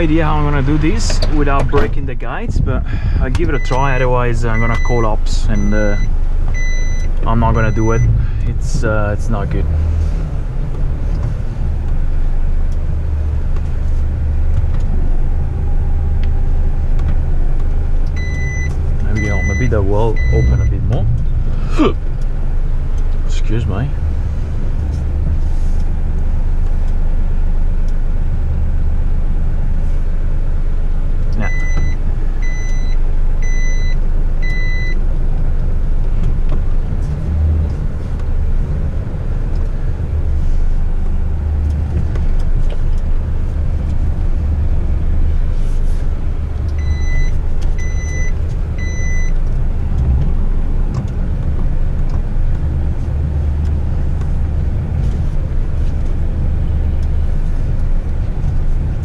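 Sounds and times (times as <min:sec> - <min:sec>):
diesel engine idling: 0:00.0 - 0:59.0
short electronic beeps: 0:18.2 - 0:20.8.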